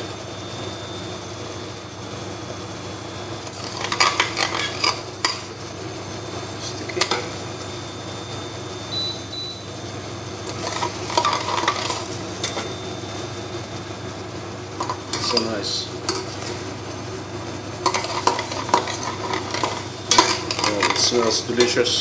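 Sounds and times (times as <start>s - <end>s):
caramel sizzling in a pot: 2.6s - 22.0s
utensil scraping a pot: 3.4s - 5.6s, 10.4s - 12.8s, 14.8s - 16.8s, 17.8s - 21.9s.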